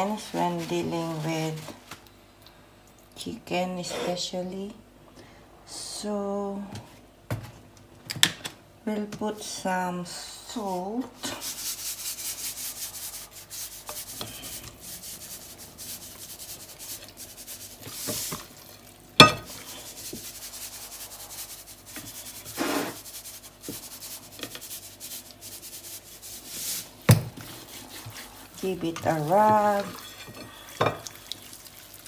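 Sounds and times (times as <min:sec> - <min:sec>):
hand rubbing chicken skin: 0:11.4 - 0:18.8, 0:19.5 - 0:29.8.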